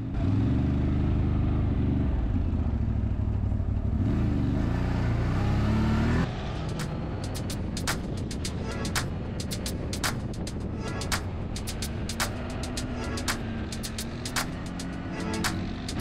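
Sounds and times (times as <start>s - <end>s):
sharp clicks: 6.7s - 16.0s
atv engine revving: 11.6s - 16.0s.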